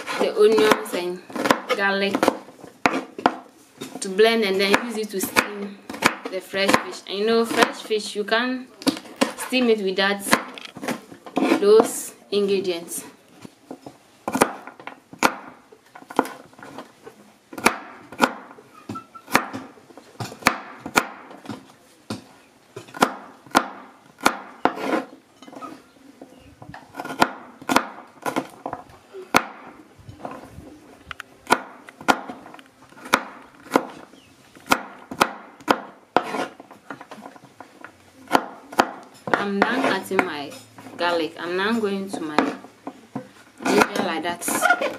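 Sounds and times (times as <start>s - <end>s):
knife chopping on wooden board: 0.0s - 3.4s, 4.7s - 7.8s, 14.3s - 16.4s, 17.6s - 25.1s, 26.9s - 29.7s, 31.5s - 37.2s, 38.3s - 40.4s.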